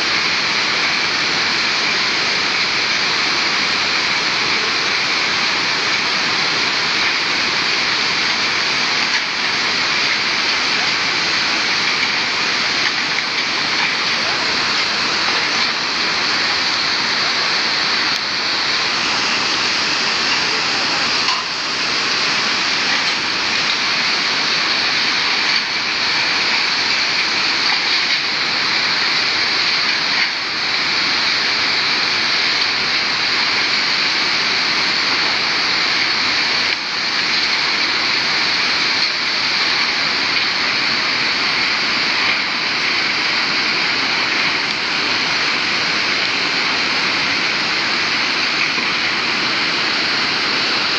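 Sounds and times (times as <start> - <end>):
river water rushing: 0.0 - 50.9.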